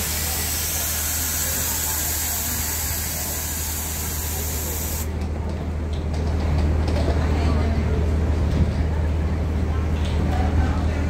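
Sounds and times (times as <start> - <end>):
compressed air hissing: 0.0 - 5.1
diesel engine idling: 0.0 - 5.2.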